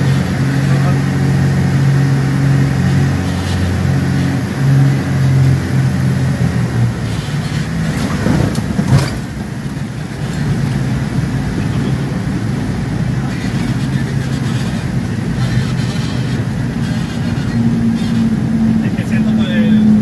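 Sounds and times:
piston aircraft engines droning: 0.0 - 20.0
steady rushing noise: 0.0 - 20.0
short clatter: 7.3 - 9.5.

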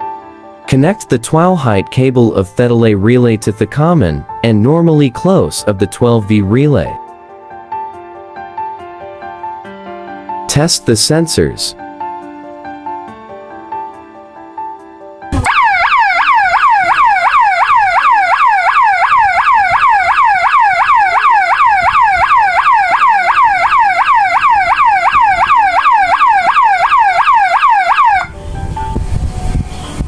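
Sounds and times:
alarm siren yelping: 15.4 - 28.3.

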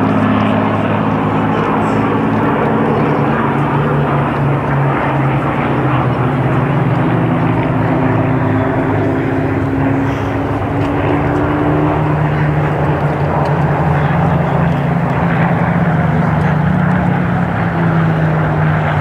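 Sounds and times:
propeller aircraft engines droning: 0.0 - 19.0.

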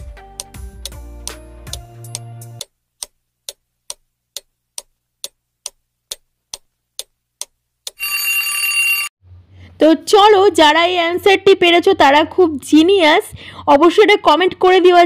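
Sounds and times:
clock ticking: 0.1 - 8.0
alarm ringing: 8.0 - 9.1.

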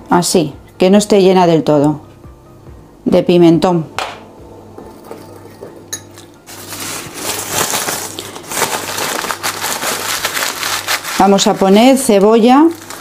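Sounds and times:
metal spoon clinking on ceramic bowl: 5.0 - 6.4
spoon scraping through dry spices: 6.4 - 13.0.

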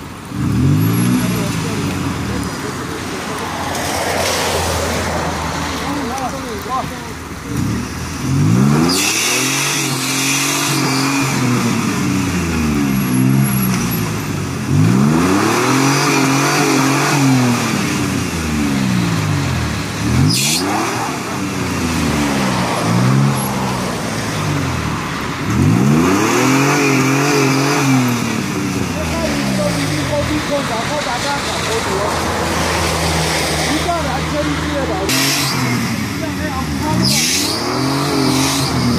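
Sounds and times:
engine revving: 0.0 - 38.9.

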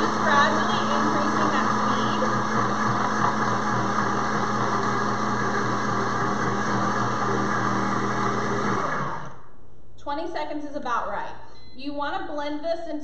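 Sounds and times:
blender blending ice: 0.0 - 9.4.

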